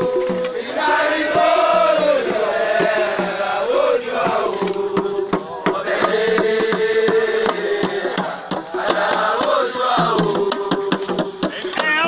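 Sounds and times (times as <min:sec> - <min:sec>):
hand drums beating: 0:00.0 - 0:12.0
voices chanting together: 0:00.0 - 0:12.0.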